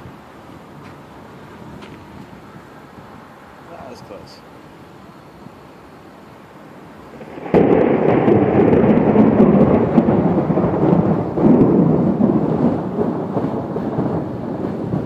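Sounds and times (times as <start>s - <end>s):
thunder crack and rumble: 7.1s - 15.0s.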